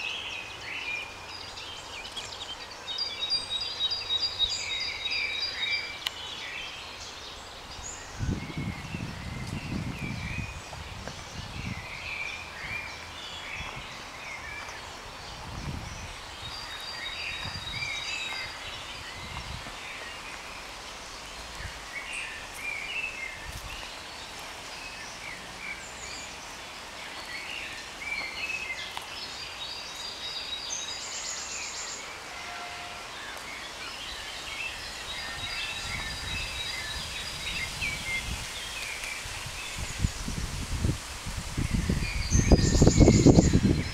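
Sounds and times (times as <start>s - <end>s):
songbirds chirping and singing: 0.0s - 40.8s, 41.4s - 43.9s
low rumbling on microphone: 7.9s - 14.1s, 14.8s - 16.6s.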